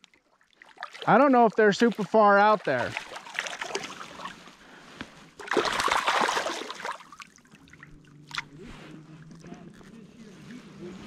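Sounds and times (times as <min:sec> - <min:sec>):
water lapping: 0:00.0 - 0:11.0
fish splashing in water: 0:00.1 - 0:01.2, 0:01.8 - 0:04.4, 0:05.3 - 0:08.6.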